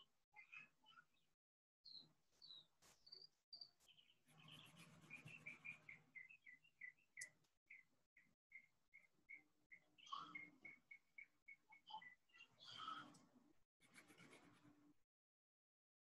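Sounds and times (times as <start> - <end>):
faint high bird chirps: 0.0 - 13.4
pencil scratching on paper: 3.8 - 5.9, 13.8 - 14.9.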